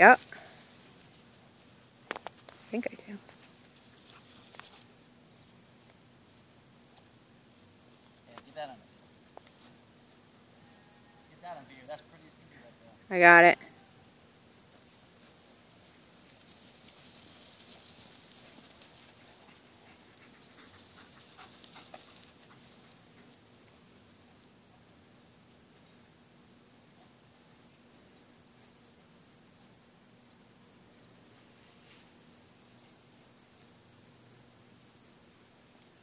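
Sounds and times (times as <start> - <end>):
insect chorus trilling: 0.0 - 36.0.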